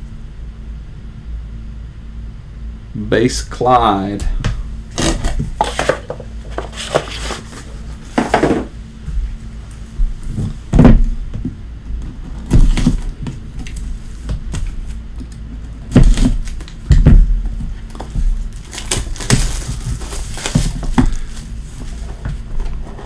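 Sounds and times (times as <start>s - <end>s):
box knocks and thumps on table: 5.1s - 7.2s, 8.2s - 8.7s, 10.7s - 11.5s
plastic wrap crinkling: 17.8s - 22.0s.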